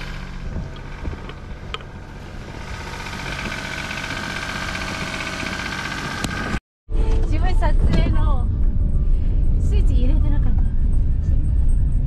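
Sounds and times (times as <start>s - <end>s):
car engine idling: 0.0s - 6.6s.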